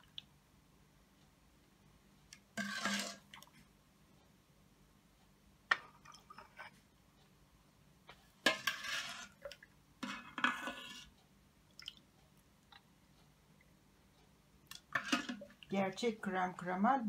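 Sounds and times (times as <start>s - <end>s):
liquid splashing into cups: 14.7s - 15.7s.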